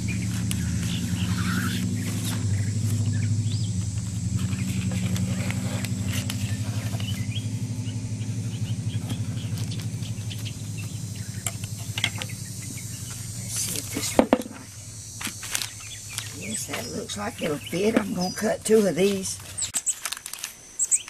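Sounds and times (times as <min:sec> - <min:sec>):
low motor hum: 0:00.0 - 0:19.7
faint chirps: 0:00.0 - 0:20.0
plastic sheet rustling: 0:18.7 - 0:21.0.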